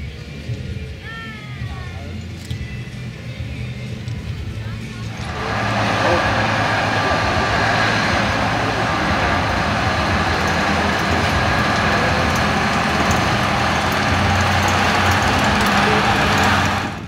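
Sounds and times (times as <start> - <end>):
locomotive diesel engine running: 4.3 - 17.0
steady low hum: 4.9 - 17.0.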